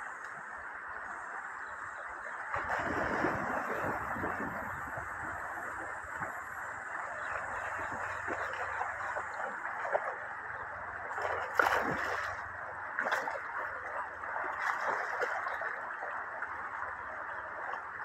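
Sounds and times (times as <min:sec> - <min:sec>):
shallow river rushing: 0:02.4 - 0:18.0
dog splashing through water: 0:02.5 - 0:04.5, 0:07.2 - 0:10.3, 0:11.0 - 0:16.8.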